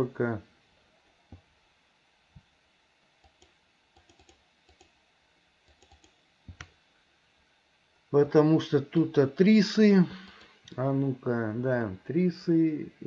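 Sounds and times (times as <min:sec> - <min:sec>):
keyboard key presses: 0:03.2 - 0:04.9, 0:05.7 - 0:06.7
computer mouse clicks: 0:03.2 - 0:05.0, 0:05.6 - 0:06.8.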